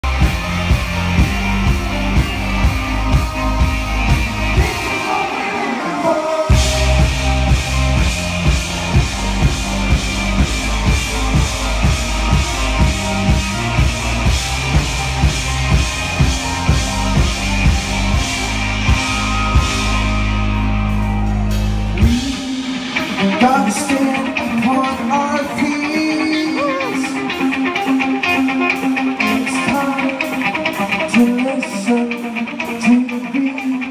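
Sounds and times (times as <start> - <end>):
drum kit beat: 0.0 - 24.8
keyboards: 0.0 - 30.8
bass guitar: 0.0 - 33.9.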